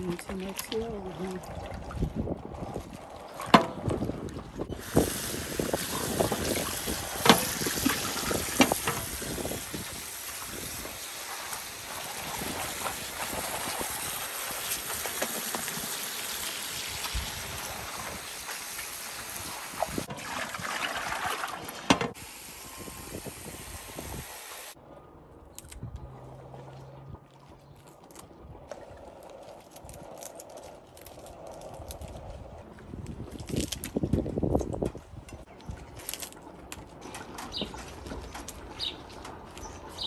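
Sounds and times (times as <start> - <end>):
splashing of leaves being washed: 0.0 - 24.8
tap water running into bowl: 4.9 - 22.2.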